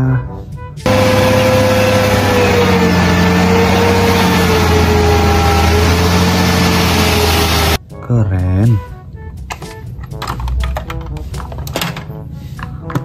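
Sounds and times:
diesel truck engine running: 0.9s - 7.8s.

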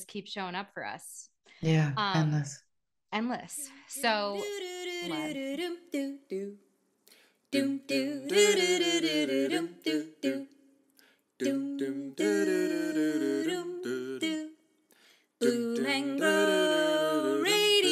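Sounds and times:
person singing: 1.6s - 2.6s, 3.9s - 6.5s, 11.4s - 14.5s, 15.4s - 17.9s.

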